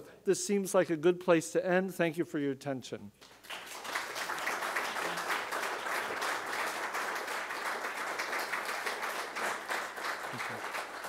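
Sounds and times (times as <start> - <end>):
audience applauding: 3.3 - 11.0.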